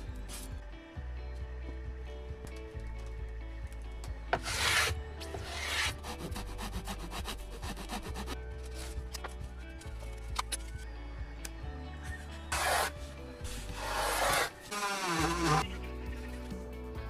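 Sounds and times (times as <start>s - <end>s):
background music: 0.0s - 17.0s
rasping rubbing on wood: 4.4s - 8.4s, 12.5s - 15.6s.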